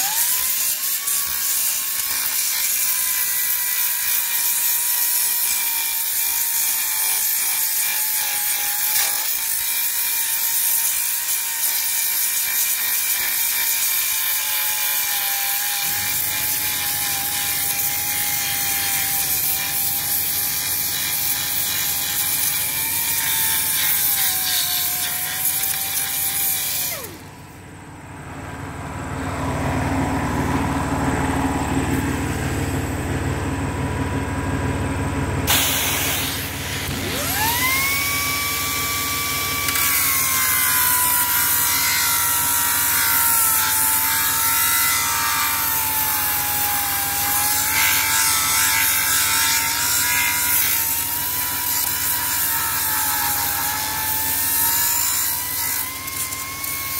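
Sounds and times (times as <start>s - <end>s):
pneumatic belt sander grinding metal: 0.0s - 27.6s, 35.4s - 56.9s
air hiss: 35.5s - 36.9s.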